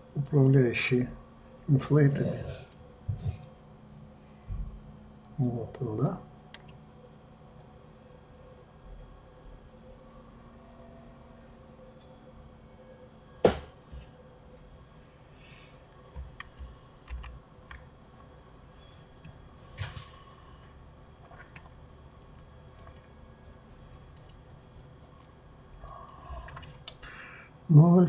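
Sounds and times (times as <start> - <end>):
faint steady hum: 0.0 - 28.0
sharp knock: 13.4 - 13.7.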